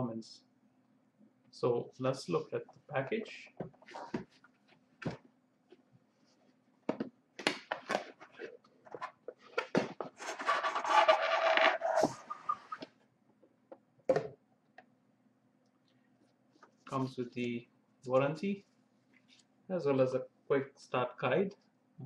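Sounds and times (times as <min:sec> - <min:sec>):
lid and paper scraping rustling: 0:07.8 - 0:12.8.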